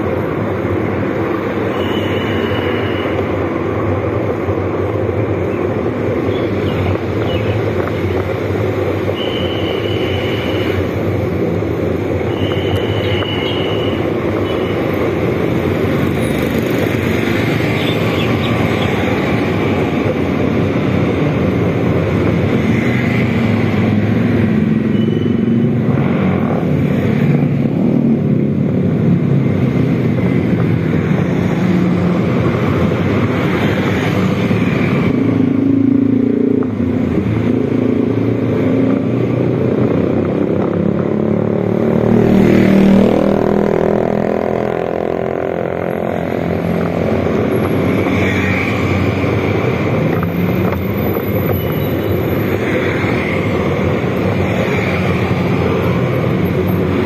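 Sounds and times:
motorcycle engine revving: 34.2s - 47.9s.

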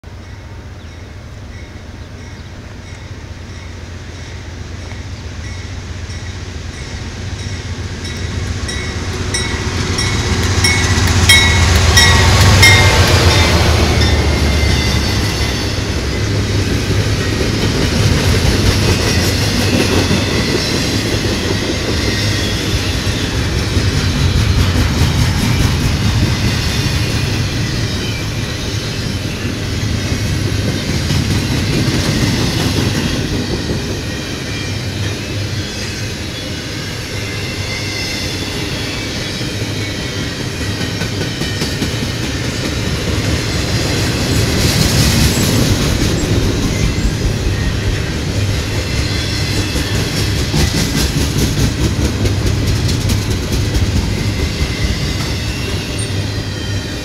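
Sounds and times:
diesel locomotive passing: 0.0s - 57.0s
high-pitched ringing bell: 5.4s - 16.5s.

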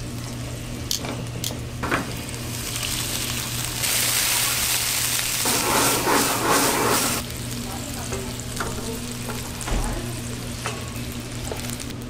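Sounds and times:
meatballs sizzling in a frying pan: 2.1s - 12.0s.

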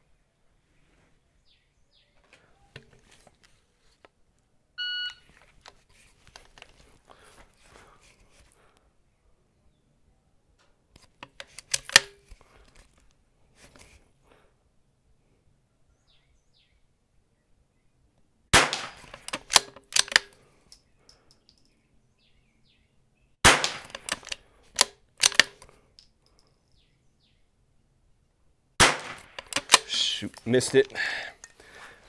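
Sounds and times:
rifle bolt clicks: 11.0s - 12.4s, 18.6s - 20.5s, 23.5s - 26.1s, 28.8s - 31.6s
rifle shots: 18.5s - 20.3s, 23.4s - 24.3s, 28.8s - 30.0s.

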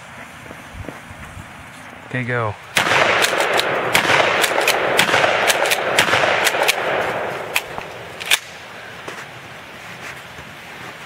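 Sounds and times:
shotgun shots: 2.8s - 8.6s.

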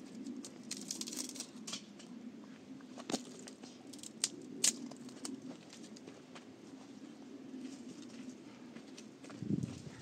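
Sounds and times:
dry twigs snapping: 0.4s - 1.8s, 3.1s - 5.3s.

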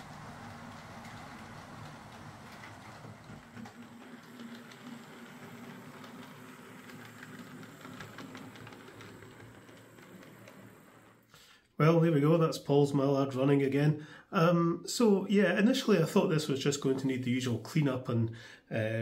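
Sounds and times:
model train motor hum: 0.0s - 11.3s
wheels clicking on rails: 0.0s - 11.3s.

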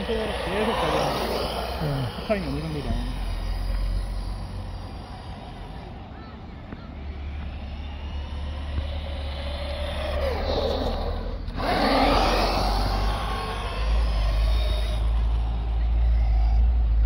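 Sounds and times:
rc car motor whine: 0.0s - 17.0s
steady low rumble: 11.1s - 17.0s.

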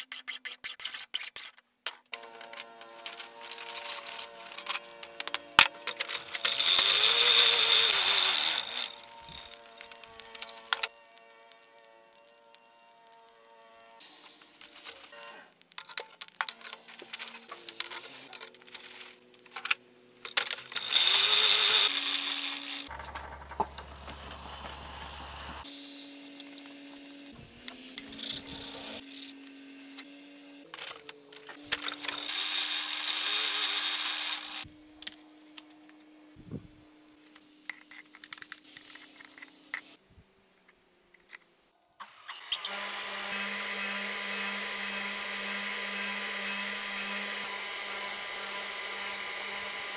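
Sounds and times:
bandsaw motor humming: 2.2s - 15.6s, 20.2s - 36.6s, 42.3s - 49.9s
hot metal hissing in oil: 6.2s - 15.7s, 24.1s - 26.7s.

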